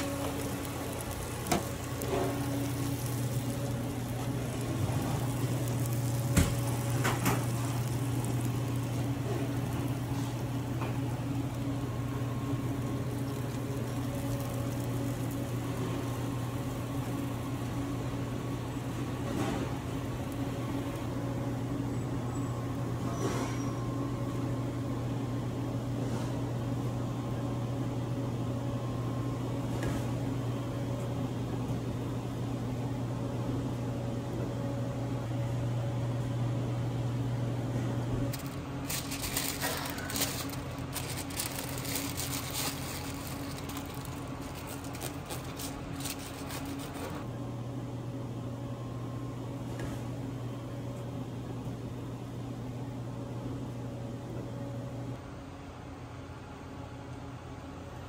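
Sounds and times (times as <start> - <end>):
electrical machinery hum: 0.0 - 58.0
rapid clicks and rustling: 38.3 - 47.2.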